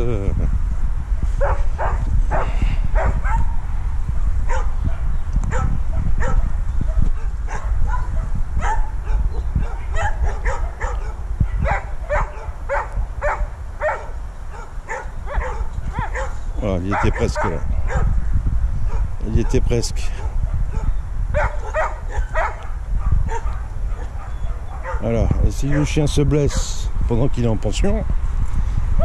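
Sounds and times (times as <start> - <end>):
steady low rumble: 0.0 - 29.0
dog yelping and barking: 4.5 - 18.1, 20.6 - 25.9.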